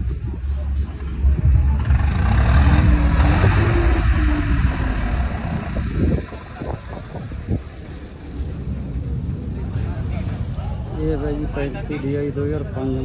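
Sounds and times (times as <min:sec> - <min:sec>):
diesel tractor engine revving: 0:01.0 - 0:07.6.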